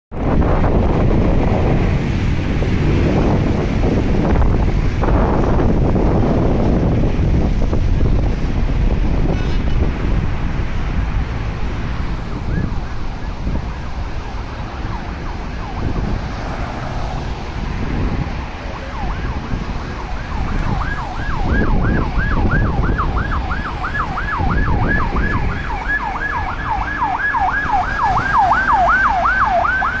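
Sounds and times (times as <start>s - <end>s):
heavy road traffic rumble: 0.1s - 30.0s
siren yelping: 12.1s - 16.8s, 18.5s - 30.0s.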